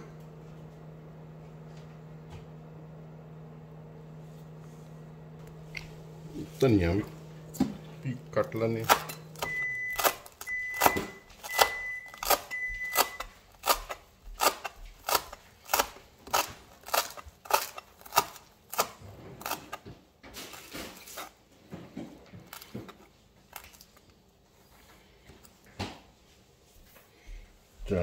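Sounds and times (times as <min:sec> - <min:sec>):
knife chopping on plastic board: 0:08.8 - 0:21.2.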